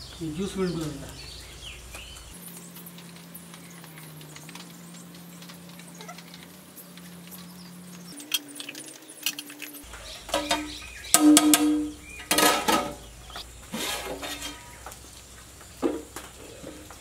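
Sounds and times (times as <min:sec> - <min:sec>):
metal plate clinking on pot: 0:10.3 - 0:13.0.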